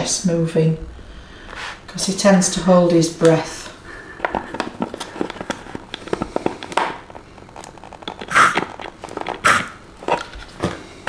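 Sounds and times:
plastic bottle crackling: 4.2 - 10.8.

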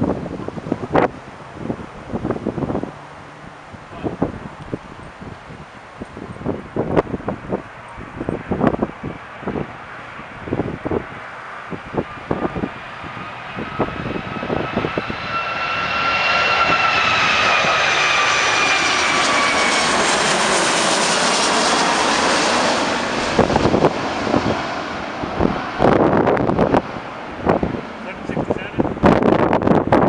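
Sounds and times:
high engine whine: 0.0 - 30.0
jet engines roaring overhead: 0.0 - 30.0
wind buffeting microphone: 0.0 - 30.0.

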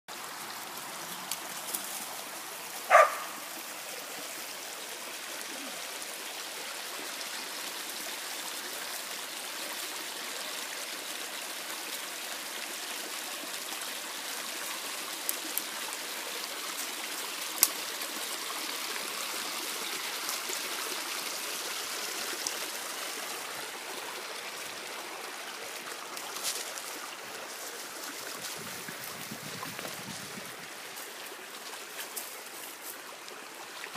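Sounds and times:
stream running over stones: 0.1 - 33.9
dog bark: 2.9 - 3.4.

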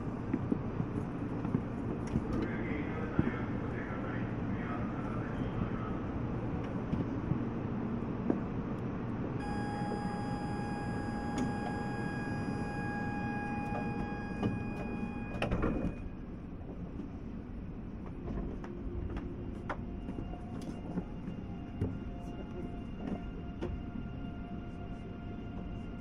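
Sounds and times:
low train rumble: 0.0 - 26.0
high door-closing buzzer: 9.4 - 16.1
sliding doors closing thump: 11.3 - 16.1.

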